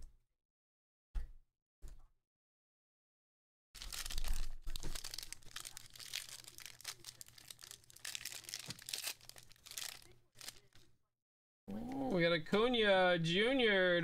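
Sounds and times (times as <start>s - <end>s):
foil wrapper crinkling and tearing: 3.8s - 10.8s.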